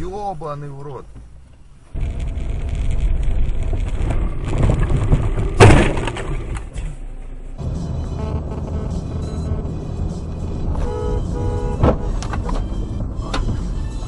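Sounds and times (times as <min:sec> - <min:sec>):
car engine and road rumble: 0:00.0 - 0:14.0
loud thump: 0:03.8 - 0:07.0, 0:11.8 - 0:12.5.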